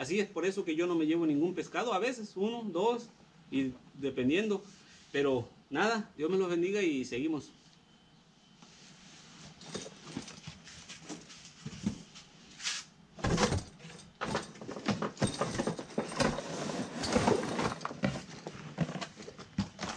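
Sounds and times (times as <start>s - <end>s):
fabric rustling: 8.6s - 12.9s
cardboard box scraping and knocking: 14.8s - 19.9s.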